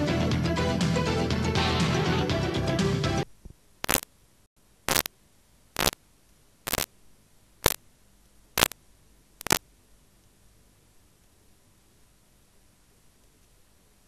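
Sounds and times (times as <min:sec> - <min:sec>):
videotape static hiss bursts: 0:03.2 - 0:04.2, 0:04.8 - 0:10.4.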